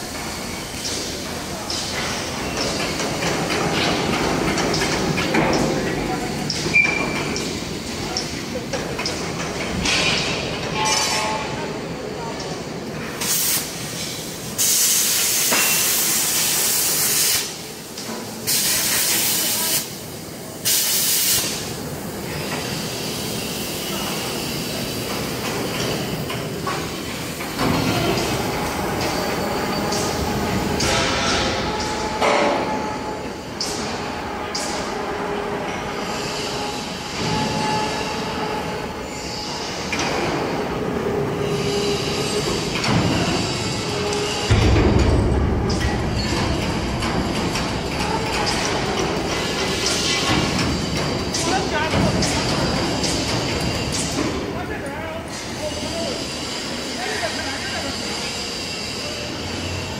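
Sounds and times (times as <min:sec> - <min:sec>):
steady mechanical noise: 0:00.0 - 0:59.9
loud hiss bursts: 0:13.1 - 0:34.1, 0:55.2 - 0:59.9.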